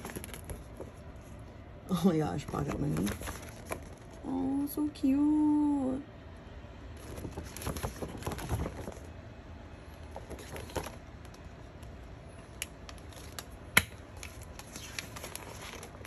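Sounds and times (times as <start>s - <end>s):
paper pages rustling: 0.0s - 1.3s, 2.4s - 4.2s, 7.0s - 9.1s, 10.1s - 11.4s, 14.1s - 16.0s.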